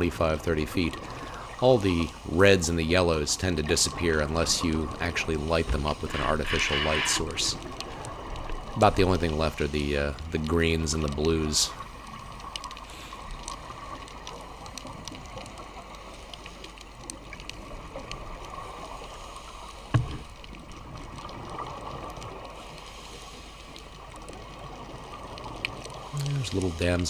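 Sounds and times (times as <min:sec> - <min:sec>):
underwater watery hiss: 0:05.5 - 0:08.4, 0:22.4 - 0:23.8
faint clicks: 0:10.1 - 0:19.1, 0:20.2 - 0:26.7.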